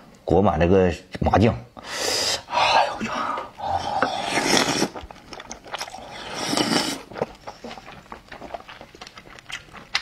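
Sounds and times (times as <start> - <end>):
wet slurp through lips: 3.8 - 5.1, 5.7 - 8.0
wet chewing and lip smacks: 7.0 - 10.0.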